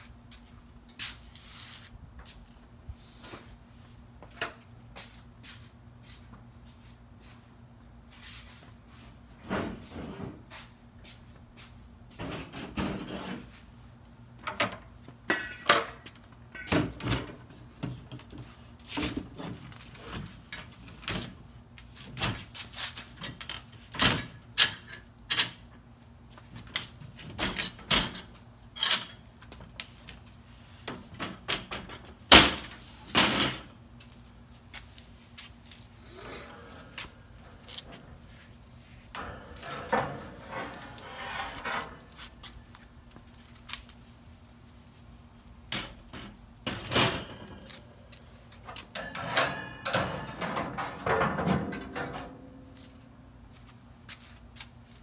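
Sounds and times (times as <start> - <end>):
metal clanks and scrapes: 12.1 - 13.6, 36.3 - 42.5, 45.7 - 48.0, 48.6 - 53.0.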